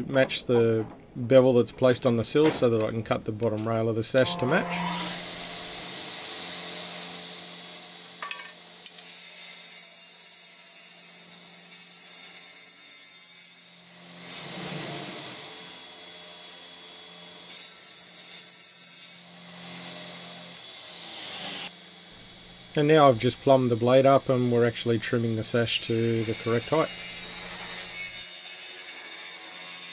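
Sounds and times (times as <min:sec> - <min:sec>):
saw blade cutting wood: 0:04.2 - 0:06.2, 0:13.4 - 0:15.8, 0:25.0 - 0:29.9
table saw humming and whining: 0:04.2 - 0:12.5, 0:13.4 - 0:29.9.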